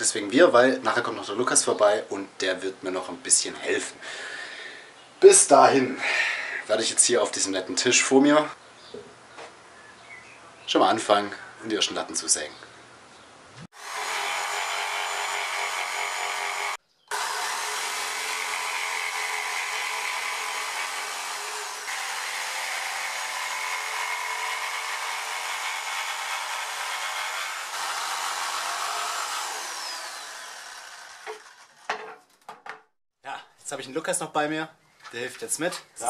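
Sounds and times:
jigsaw cutting wood: 13.7 - 31.9.

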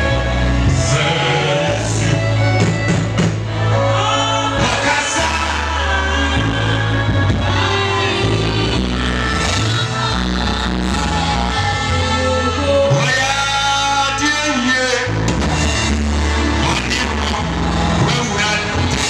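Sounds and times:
people singing: 0.0 - 2.9, 3.5 - 15.0
bass line: 0.0 - 19.0
drum kit: 0.7 - 11.6, 14.9 - 19.0.

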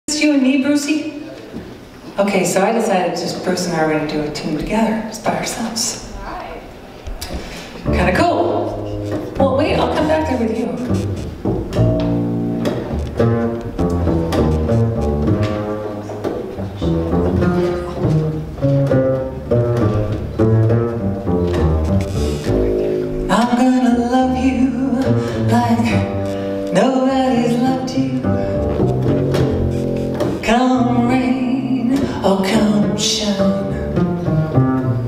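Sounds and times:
double bass played pizzicato: 7.8 - 35.0
woman singing: 23.3 - 26.1, 26.7 - 28.4, 30.4 - 33.8.

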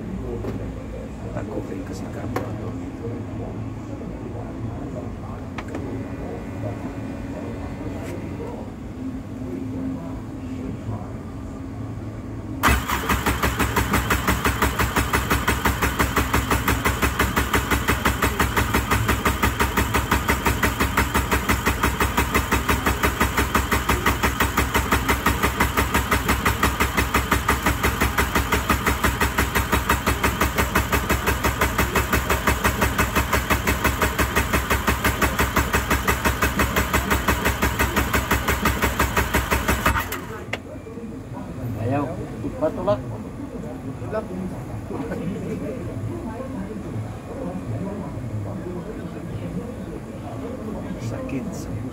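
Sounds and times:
engine cranking without starting: 12.6 - 40.5.

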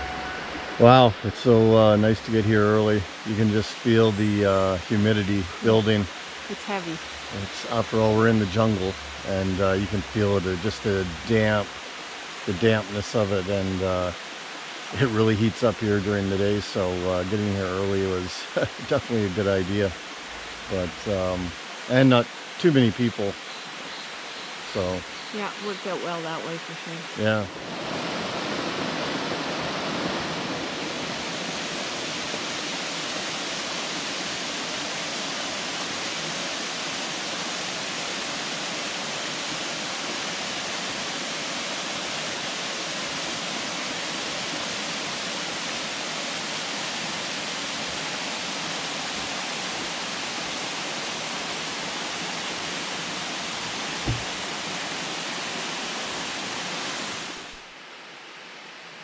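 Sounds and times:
waterfall rushing: 0.0 - 57.8
low thump: 54.0 - 54.4.

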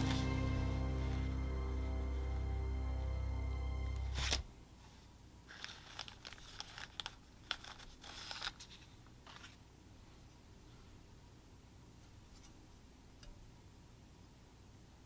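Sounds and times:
background music: 0.0 - 4.5
plastic bag crinkling: 5.5 - 9.6.

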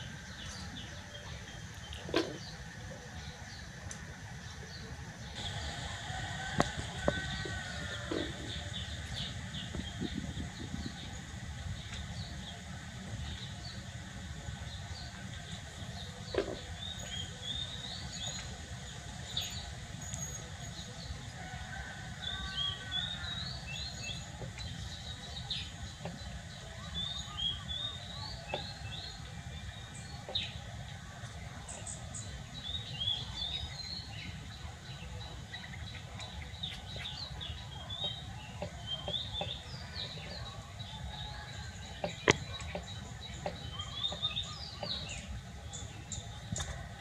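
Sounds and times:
low background rumble: 0.0 - 21.4
small birds chirping: 22.7 - 47.0.

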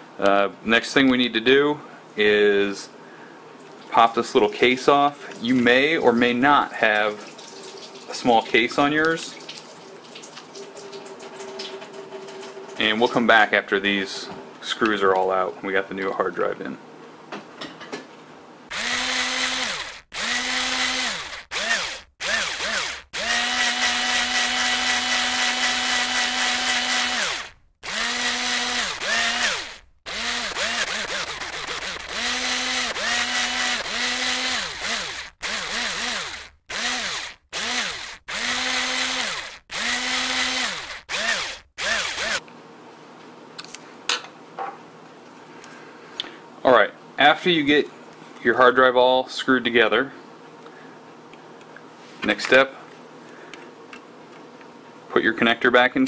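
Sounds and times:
electric drill motor whining: 18.7 - 42.4.

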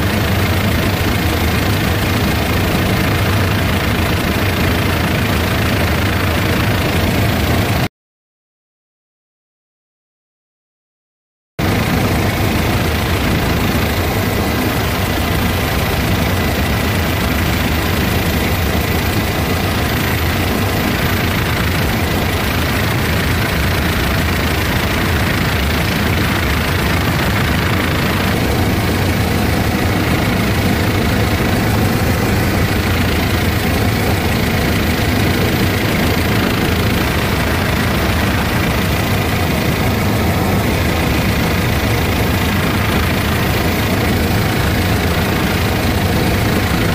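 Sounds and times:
helicopter engine and rotor noise: 0.0 - 7.9, 11.6 - 46.9.

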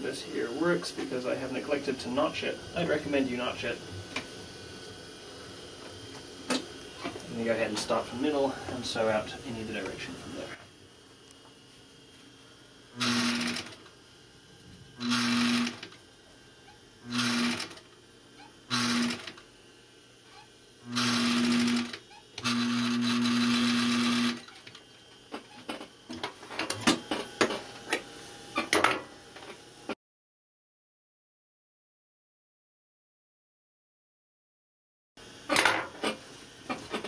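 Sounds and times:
sewing machine stitching: 13.0 - 13.8, 15.0 - 15.9, 17.1 - 17.8, 18.7 - 19.4, 20.9 - 24.8.

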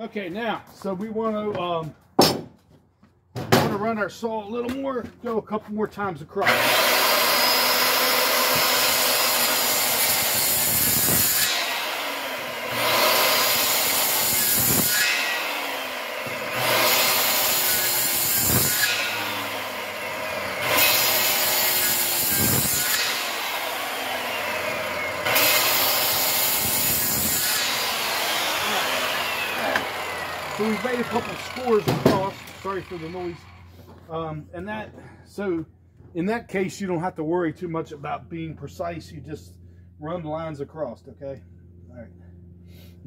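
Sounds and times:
circular saw cutting wood: 6.4 - 34.2.

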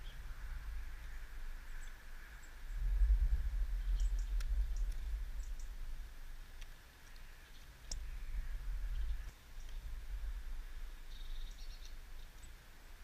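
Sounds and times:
low microphone rumble: 0.0 - 6.6, 7.8 - 12.2
small birds chirping: 0.0 - 13.0.

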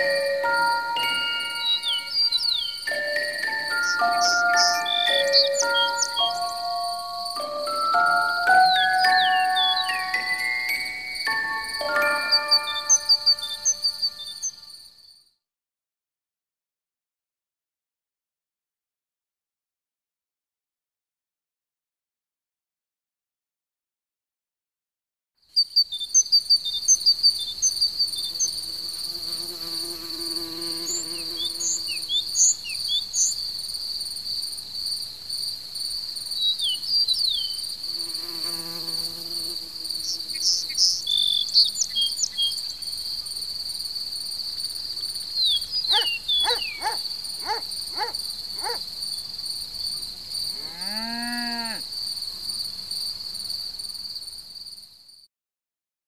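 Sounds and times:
small birds chirping: 0.0 - 7.4, 8.5 - 14.7, 25.6 - 33.5, 36.3 - 43.5, 45.0 - 49.3
crickets trilling: 0.0 - 15.3, 25.5 - 55.2
rising and falling call: 8.4 - 14.4, 45.9 - 48.8
insect buzzing: 27.0 - 33.3, 37.3 - 42.3, 44.6 - 49.5, 50.4 - 53.9.

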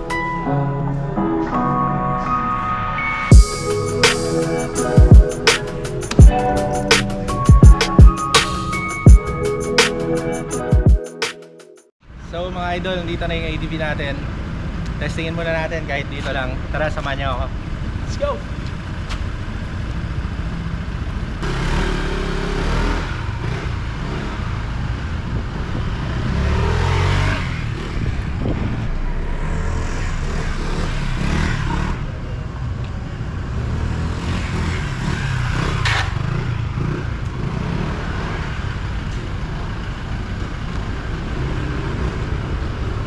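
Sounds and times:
scooter engine revving: 19.9 - 32.5, 33.3 - 43.0
steady low rumble: 27.7 - 31.2.

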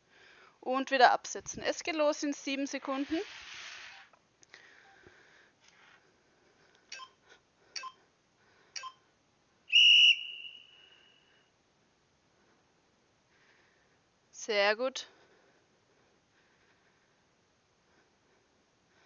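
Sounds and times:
short countdown beeps: 6.9 - 7.2, 7.8 - 8.0, 8.8 - 9.0.

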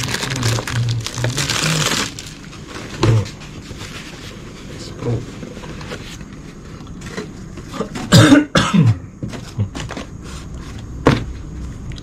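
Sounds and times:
person coughing: 8.0 - 9.0.

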